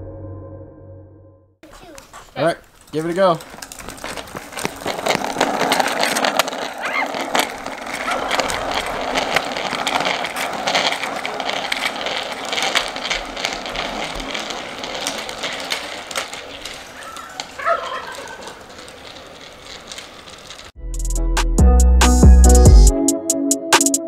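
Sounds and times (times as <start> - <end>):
bicycle rattling over concrete: 1.6 - 20.8.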